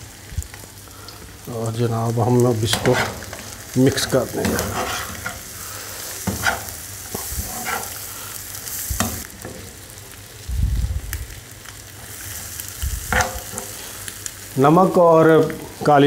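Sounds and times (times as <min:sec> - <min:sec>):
vegetables sizzling in a frying pan: 0:00.0 - 0:16.0
spoon scraping a pan: 0:02.6 - 0:03.5, 0:04.4 - 0:05.5, 0:06.1 - 0:08.0, 0:13.1 - 0:13.8
low rumble: 0:10.4 - 0:11.4.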